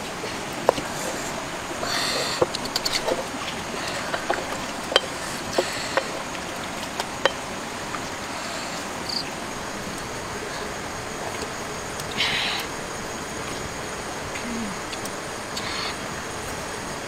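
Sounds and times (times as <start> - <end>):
wood fire crackling: 0.0 - 12.3.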